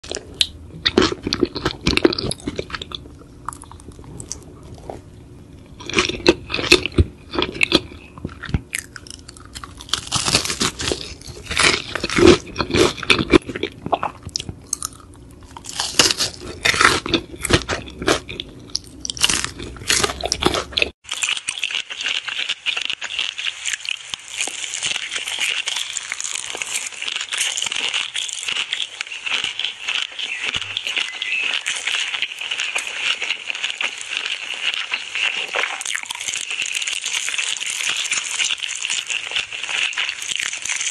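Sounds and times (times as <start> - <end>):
crunchy chewing of fried chicken: 0.0 - 40.9.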